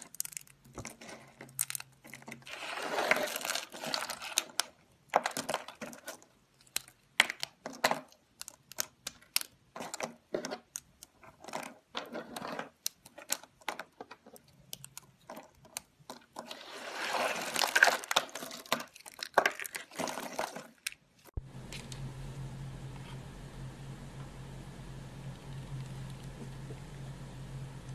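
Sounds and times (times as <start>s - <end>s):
soap chips crunching: 0.0s - 21.3s
low steady hum: 21.4s - 27.9s.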